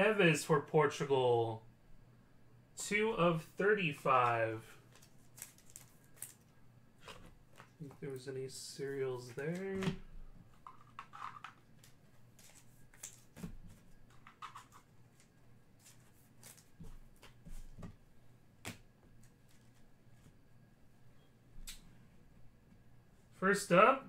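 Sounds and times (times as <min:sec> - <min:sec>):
low room hum: 0:00.0 - 0:24.0
trading cards clicking and rustling: 0:04.2 - 0:08.0, 0:09.2 - 0:17.4.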